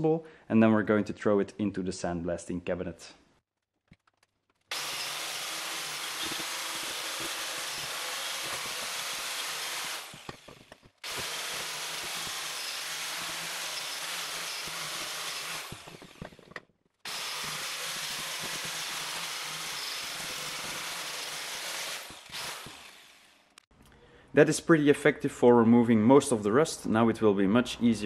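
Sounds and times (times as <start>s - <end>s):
wire wheel grinder on metal: 4.7s - 16.4s, 17.1s - 23.2s.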